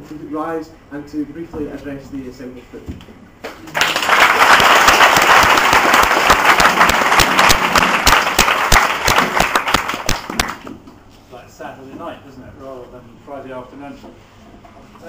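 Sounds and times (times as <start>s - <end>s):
audience applauding: 3.7s - 10.7s.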